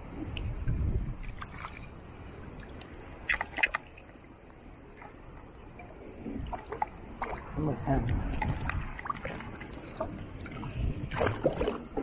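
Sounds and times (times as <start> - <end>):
rush of moving water: 0.0 - 12.0
water sloshing around metal pole: 2.6 - 4.2, 6.2 - 12.0.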